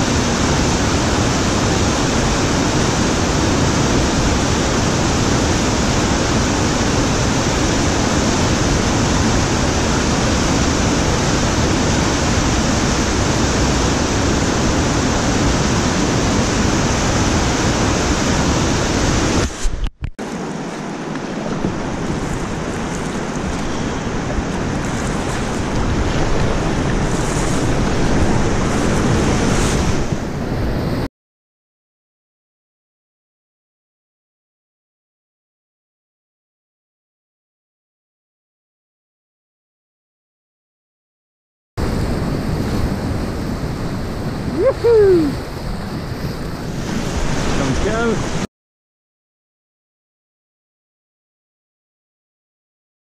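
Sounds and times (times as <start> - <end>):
rushing whitewater: 0.0 - 31.1, 41.8 - 48.5.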